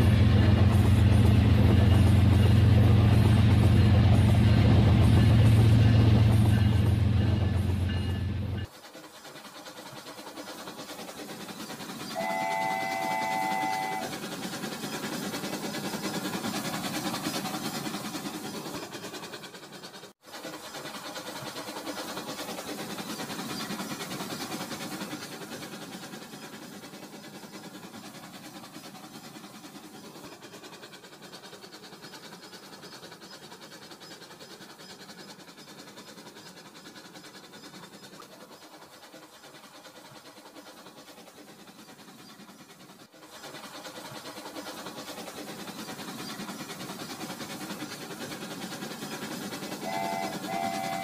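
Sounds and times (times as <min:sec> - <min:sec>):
toy train running on track: 0:00.0 - 0:51.0
electronic train whistle: 0:12.2 - 0:14.2, 0:49.8 - 0:51.0.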